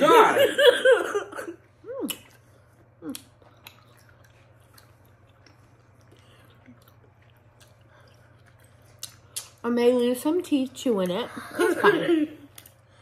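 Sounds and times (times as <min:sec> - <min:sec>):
faint chewing: 0:02.0 - 0:09.6, 0:12.4 - 0:13.0.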